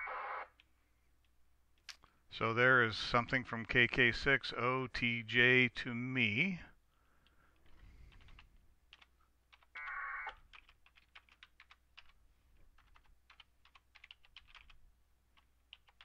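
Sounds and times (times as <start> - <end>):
warbling modem tones: 0.0 - 0.5
keyboard typing: 7.2 - 16.0.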